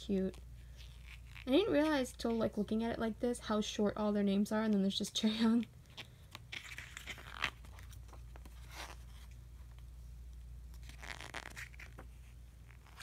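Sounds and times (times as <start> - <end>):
glossy paper pages turning: 5.9 - 9.4, 10.7 - 13.0.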